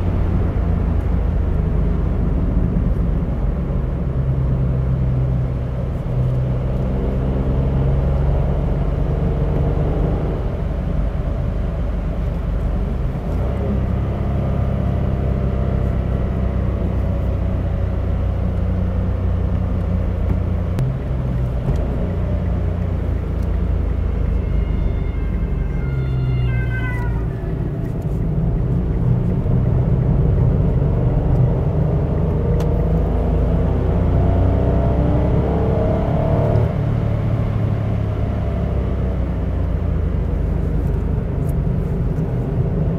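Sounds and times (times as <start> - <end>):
car engine and tyre drone: 0.0 - 42.9.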